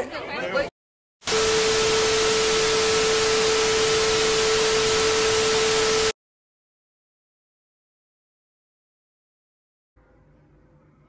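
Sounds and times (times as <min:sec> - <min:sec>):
steady mid-pitched tone: 0:01.3 - 0:06.2.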